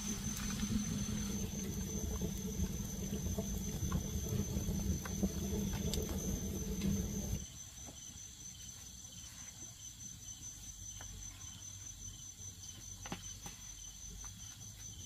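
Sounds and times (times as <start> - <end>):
insects chirring: 0.0 - 9.2.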